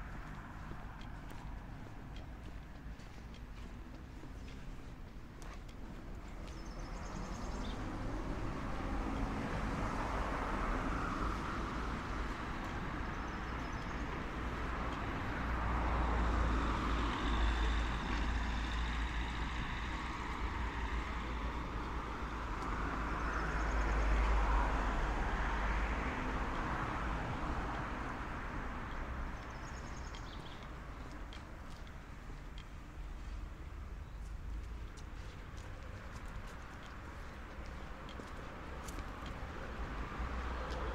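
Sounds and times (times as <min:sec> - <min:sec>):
cars passing: 0:00.0 - 0:40.9
low traffic rumble: 0:00.0 - 0:40.9.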